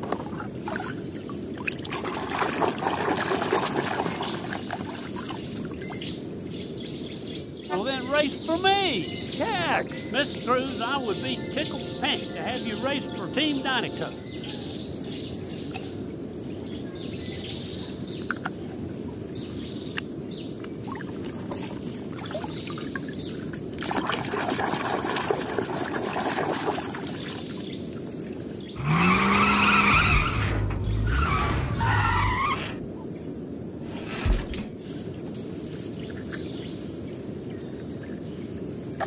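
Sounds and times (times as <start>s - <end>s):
water splashing in a tub: 0.0s - 5.9s, 20.8s - 27.6s
race car engine revving: 28.8s - 32.8s.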